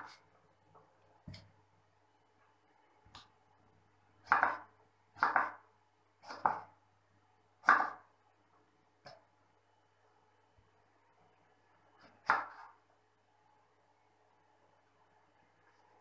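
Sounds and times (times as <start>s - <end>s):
knife slicing tomato on wooden board: 4.2s - 5.6s, 6.2s - 6.8s, 7.6s - 8.1s, 12.0s - 12.8s.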